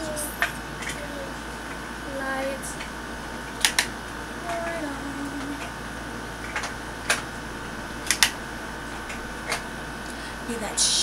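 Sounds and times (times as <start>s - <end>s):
woman humming softly: 4.4s - 5.7s.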